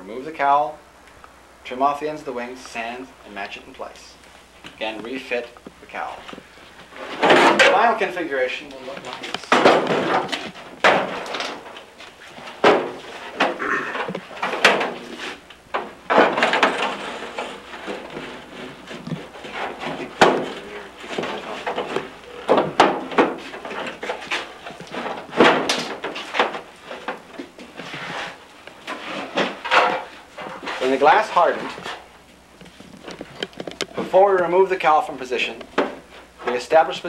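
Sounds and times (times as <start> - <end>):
shuffling: 2.3 - 10.8
objects knocking and clattering: 8.9 - 30.8, 32.6 - 34.1.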